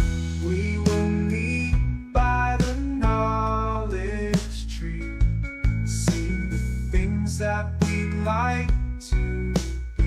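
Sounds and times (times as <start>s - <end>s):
drum hits: 0.0s - 3.2s
instrumental chords: 0.0s - 10.0s.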